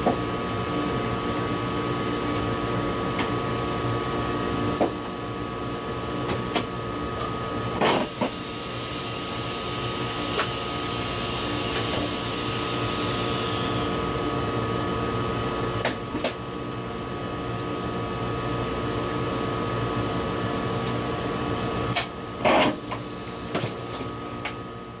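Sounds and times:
electrical hum with whining tones: 0:00.0 - 0:25.0
high hiss: 0:08.0 - 0:14.5.

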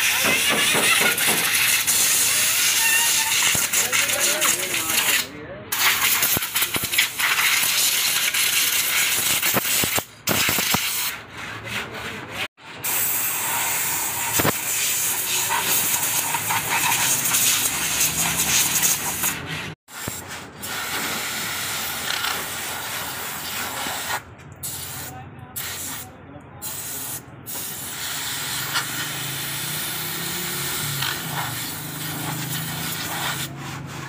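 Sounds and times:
compressed air blow gun hissing: 0:00.1 - 0:05.2, 0:12.8 - 0:25.0, 0:26.6 - 0:33.6.

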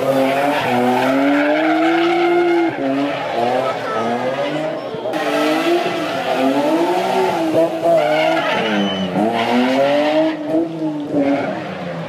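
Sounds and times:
car engine revving: 0:00.0 - 0:12.0
tyres skidding and squealing: 0:00.0 - 0:12.0.

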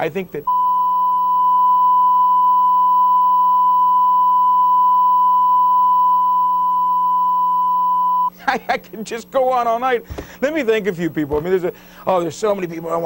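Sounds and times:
censor bleep tone: 0:00.5 - 0:08.3.

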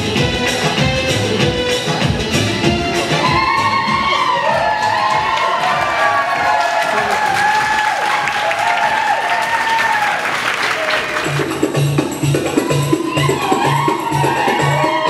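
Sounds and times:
steady drum beat: 0:00.0 - 0:08.2, 0:11.1 - 0:15.0
belly dance music: 0:00.0 - 0:15.0
audience applause: 0:03.3 - 0:11.5.

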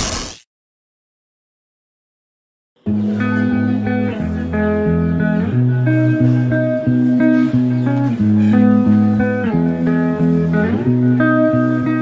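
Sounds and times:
guitar tune: 0:02.8 - 0:12.0.

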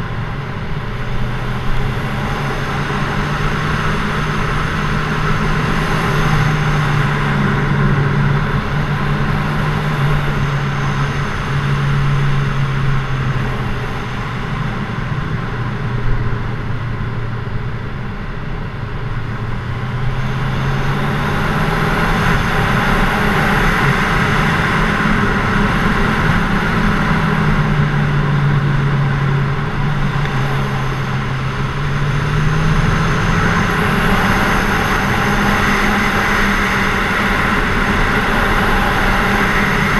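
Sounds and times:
wind and road noise: 0:00.0 - 0:39.9
motorcycle engine revving: 0:20.0 - 0:39.9.

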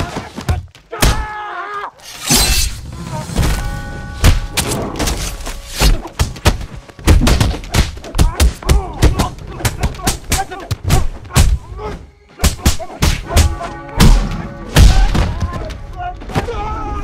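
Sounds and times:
background music: 0:02.8 - 0:17.0
punch and kick impacts: 0:05.8 - 0:11.6.

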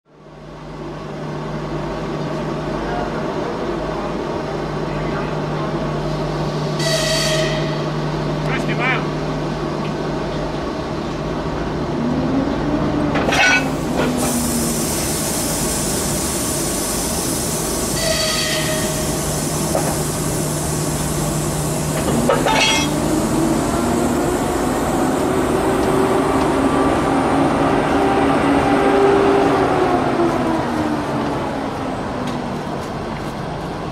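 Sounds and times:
diesel locomotive engine revving: 0:00.2 - 0:33.9
air hissing: 0:13.6 - 0:23.1.

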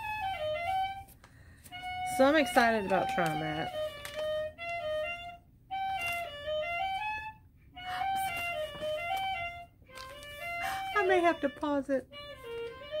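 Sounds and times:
slow high instrumental melody: 0:00.0 - 0:13.0.

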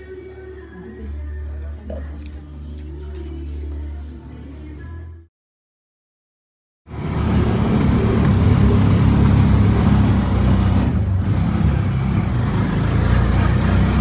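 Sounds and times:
road noise: 0:06.9 - 0:14.0
small engine droning: 0:06.9 - 0:14.0.

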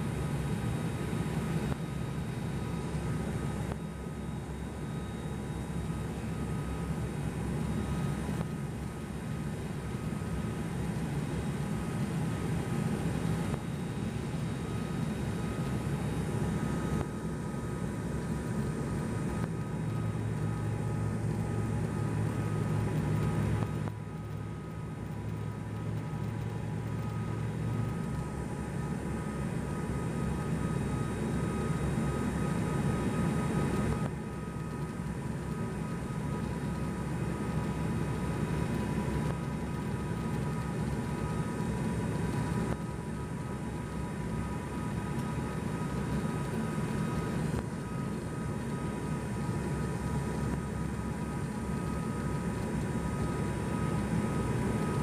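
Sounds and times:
propeller engine drone: 0:00.0 - 0:55.0.

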